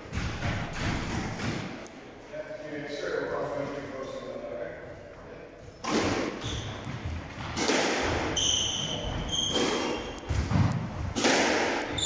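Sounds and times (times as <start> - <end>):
squash ball strikes: 0.0 - 1.8, 5.8 - 12.0
shoe squeaks: 6.3 - 6.9, 8.3 - 10.2.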